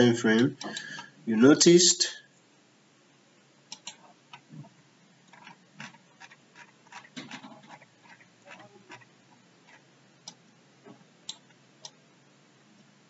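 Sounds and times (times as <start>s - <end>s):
computer mouse clicks: 3.7s - 4.7s, 9.7s - 10.4s, 11.3s - 12.0s.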